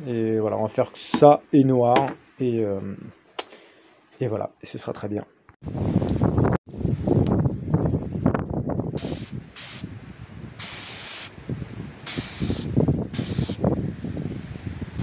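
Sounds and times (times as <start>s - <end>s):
paint spray gun hissing: 9.0s - 9.9s, 10.6s - 11.4s, 12.1s - 13.6s.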